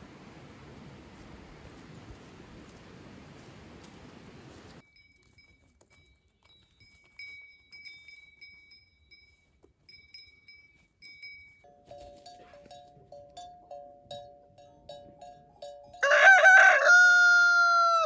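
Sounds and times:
small bells tinkling: 4.8s - 16.4s.

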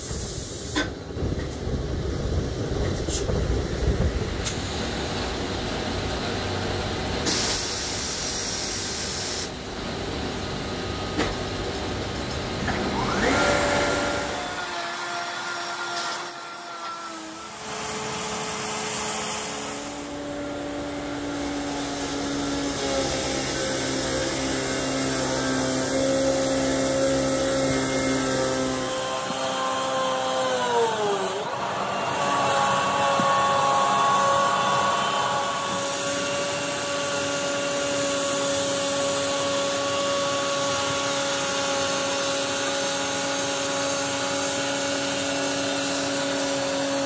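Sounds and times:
machine whine: 1.2s - 47.0s
tire buffing machine grinding: 12.6s - 47.0s.

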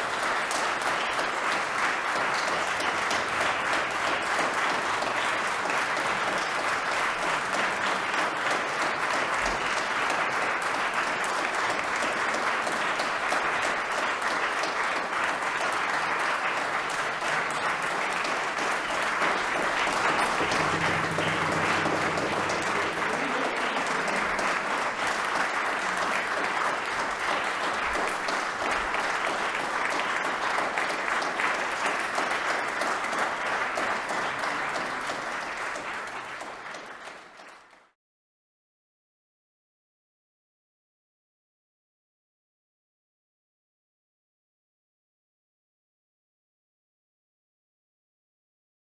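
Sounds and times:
audience applause: 0.0s - 38.0s.

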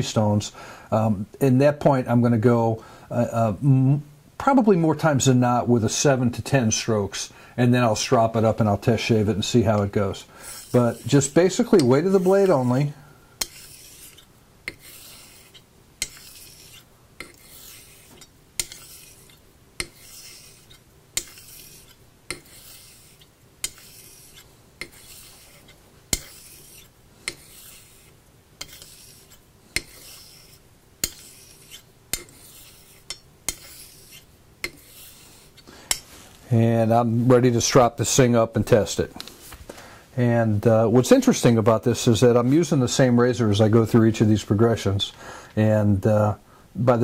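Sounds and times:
razor hissing over whetstone: 10.4s - 36.0s.

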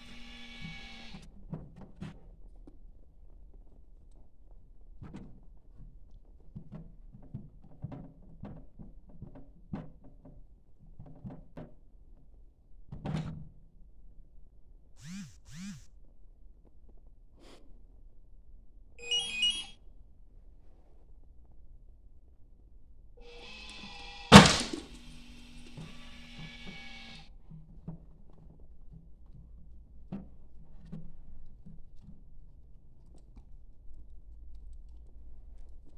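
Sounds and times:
heavy thunk: 24.3s - 25.0s
ball launcher firing: 24.3s - 25.1s.

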